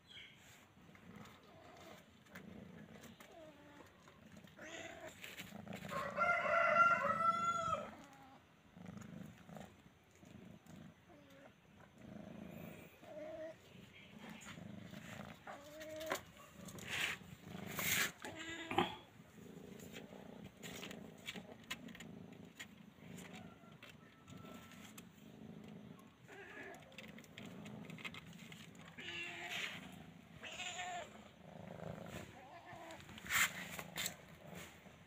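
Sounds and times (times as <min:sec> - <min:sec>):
faint clicks and rustling: 0:19.7 - 0:30.0
cat meowing: 0:29.0 - 0:29.8, 0:30.4 - 0:31.2.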